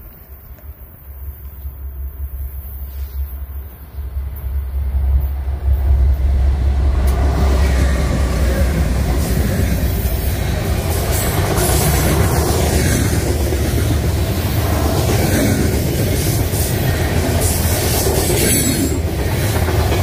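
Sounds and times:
diesel locomotive engines rumbling: 0.0 - 20.0
train wheels rattling on rails: 4.1 - 20.0.

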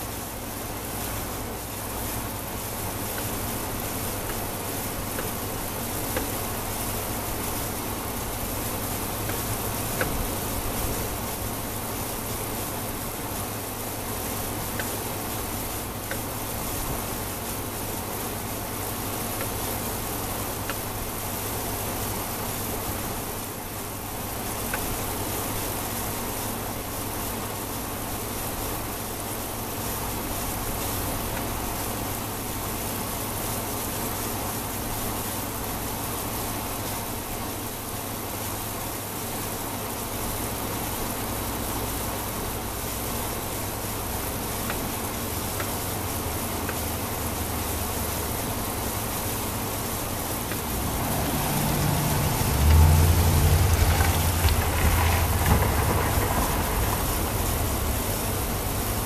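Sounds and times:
even hiss: 0.0 - 59.0
faint ticks: 5.1 - 5.4, 14.8 - 15.0, 16.1 - 16.3, 19.4 - 19.6, 46.6 - 46.9
constant low hum: 44.2 - 59.0.

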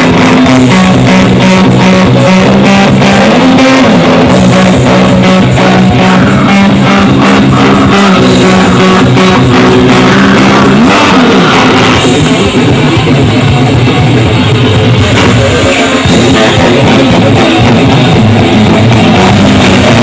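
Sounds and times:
bent guitar note: 0.0 - 13.1
death metal band playing: 0.0 - 20.0.

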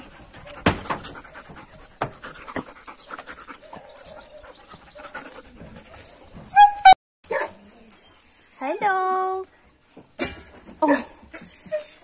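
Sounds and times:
dog panting: 0.0 - 6.4.

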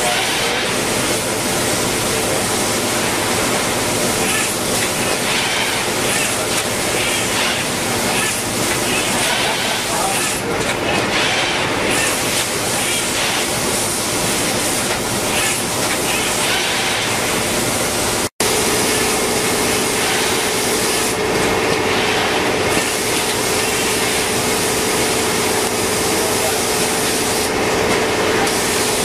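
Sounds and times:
machinery noise: 0.0 - 29.0.

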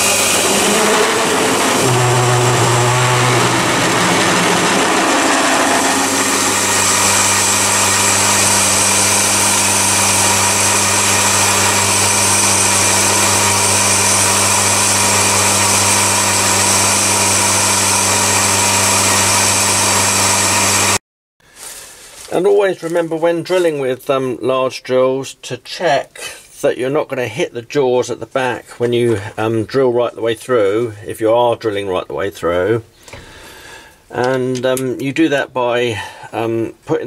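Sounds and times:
drill cutting metal hiss: 0.0 - 21.0
lathe motor hum and whine: 0.0 - 21.0.

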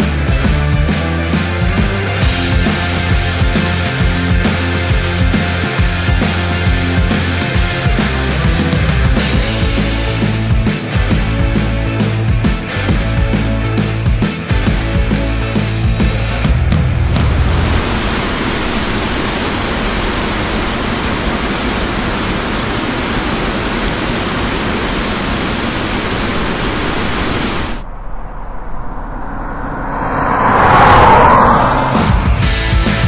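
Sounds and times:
car passing: 16.9 - 20.4, 26.9 - 33.0
water rushing over weir: 17.2 - 27.8.

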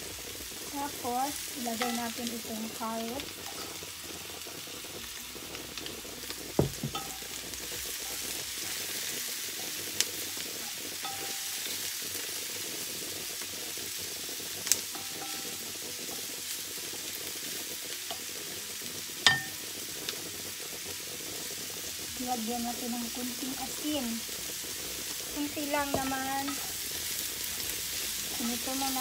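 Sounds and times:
vegetables sizzling in frying pan: 0.0 - 29.0
sharp knocks on pan: 6.6 - 7.2, 25.9 - 26.2.

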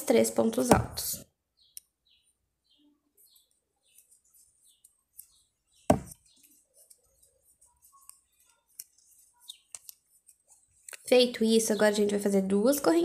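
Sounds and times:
dull knock: 5.9 - 6.1.

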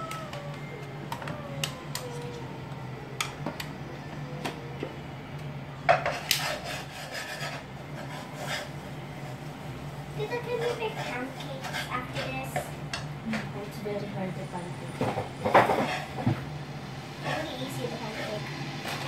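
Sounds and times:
utensil scraping a pan: 5.9 - 9.4, 10.2 - 12.7, 15.5 - 16.2, 17.2 - 19.0.

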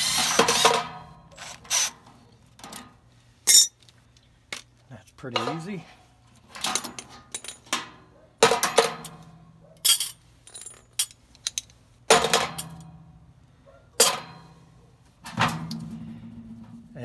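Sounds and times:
metal keys clinking on sheet metal: 6.5 - 7.8, 8.4 - 13.0.

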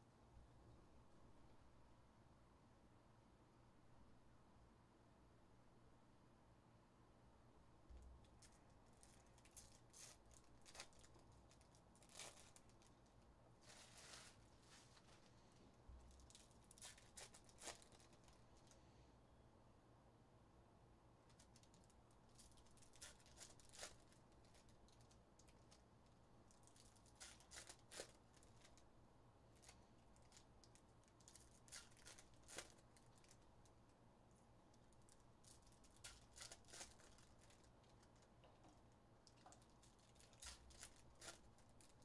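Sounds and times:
cards and wrappers clicking and crinkling: 8.2 - 15.2, 16.0 - 18.8, 21.3 - 28.8, 29.5 - 33.9, 34.7 - 38.5, 39.2 - 42.0.

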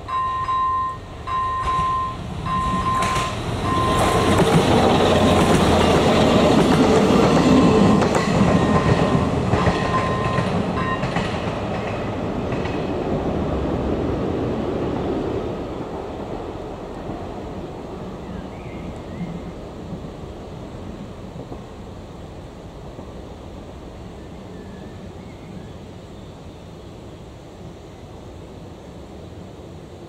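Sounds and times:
level crossing warning bell: 0.0 - 4.4, 8.5 - 11.2
diesel railcar rumbling past: 0.0 - 30.0.

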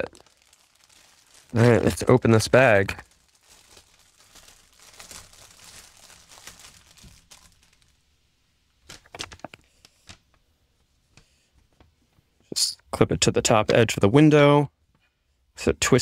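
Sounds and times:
paper sheet crinkling: 0.0 - 8.0, 8.8 - 10.3
plastic bag crinkling: 0.0 - 8.1, 8.8 - 10.3.

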